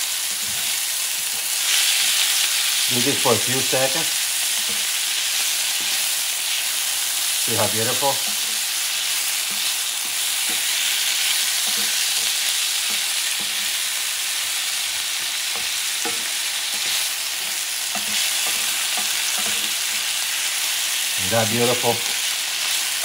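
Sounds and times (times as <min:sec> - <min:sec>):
food sizzling in oil: 0:00.0 - 0:23.0
wooden spoon scraping a pan: 0:14.9 - 0:20.2.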